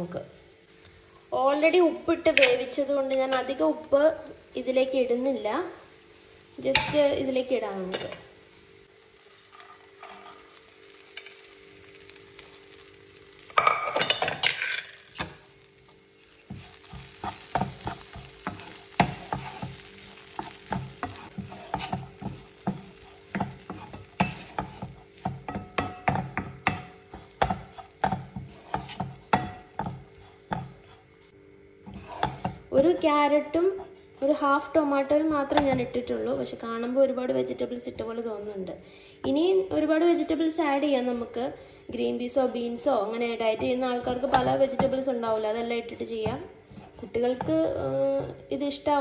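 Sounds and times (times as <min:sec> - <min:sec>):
faint sizzle: 0:00.0 - 0:49.0
wooden spatula scraping pan: 0:09.3 - 0:10.6, 0:16.2 - 0:33.0, 0:42.3 - 0:48.6.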